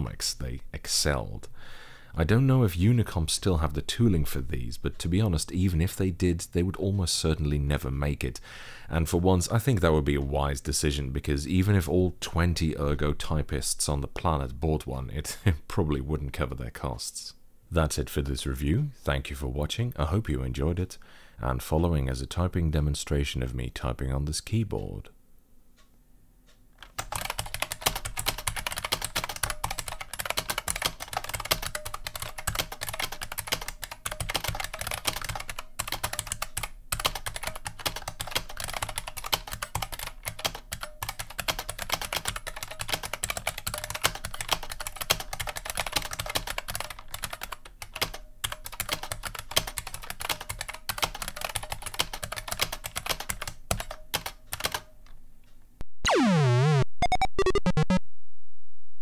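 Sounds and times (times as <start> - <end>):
keyboard typing clatter: 26.8 - 54.9.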